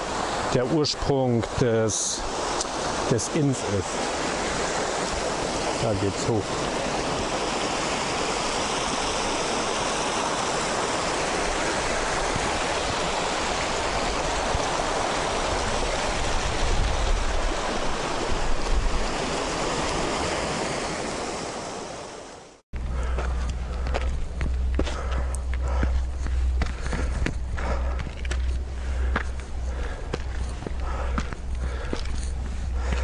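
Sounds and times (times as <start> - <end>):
mountain stream rushing: 0.0 - 33.0
wind buffeting microphone: 11.0 - 20.1.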